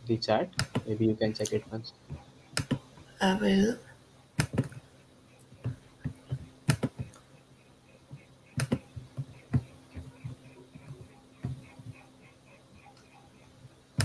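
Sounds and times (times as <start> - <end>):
faint low hum: 0.0 - 14.0
typing on a computer keyboard: 8.6 - 9.0.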